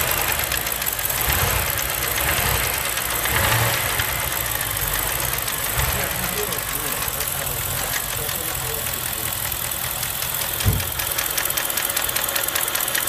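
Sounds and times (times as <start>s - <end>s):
knocking engine running: 0.0s - 13.0s
dull thump: 10.6s - 11.1s.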